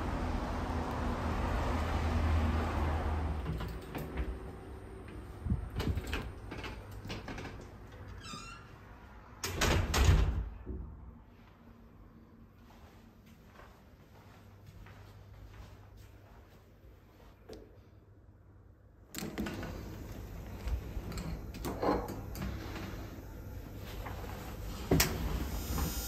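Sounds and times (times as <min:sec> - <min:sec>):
heavy door closing with a thud: 0:09.4 - 0:10.6.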